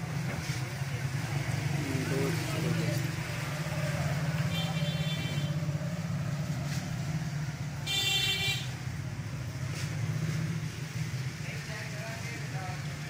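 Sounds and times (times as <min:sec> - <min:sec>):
traffic engine rumble: 0:00.0 - 0:13.0
high-pitched vehicle horn: 0:04.5 - 0:05.6, 0:07.8 - 0:08.8.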